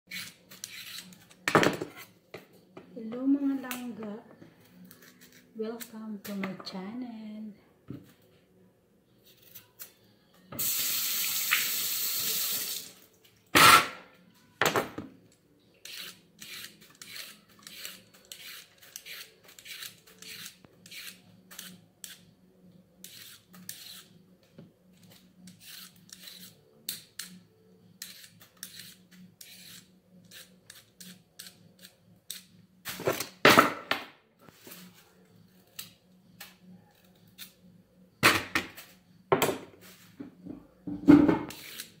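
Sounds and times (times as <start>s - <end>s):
peeler scraping carrots: 0.1s - 1.4s, 15.8s - 22.3s, 23.0s - 24.2s, 25.0s - 27.4s, 28.0s - 32.5s, 41.5s - 42.0s.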